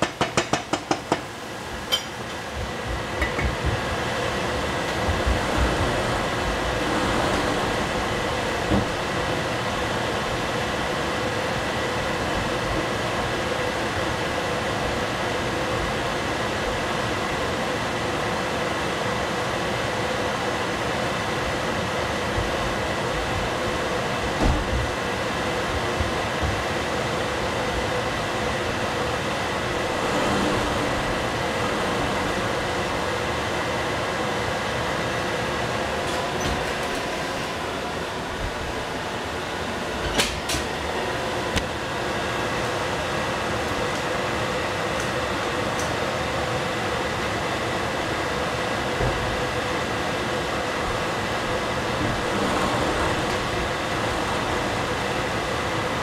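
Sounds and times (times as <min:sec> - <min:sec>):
fan whirring with high whine: 0:00.0 - 0:56.0.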